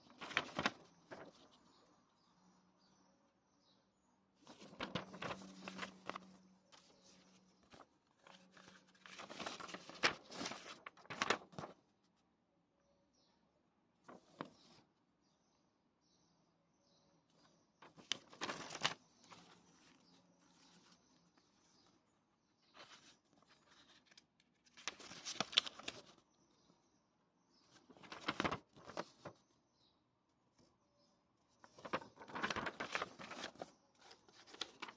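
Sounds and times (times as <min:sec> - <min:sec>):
paper rustling and crackling: 0:00.0 - 0:01.8, 0:04.4 - 0:11.8, 0:14.1 - 0:14.8, 0:17.8 - 0:21.0, 0:22.7 - 0:26.2, 0:27.7 - 0:29.4, 0:31.5 - 0:34.9.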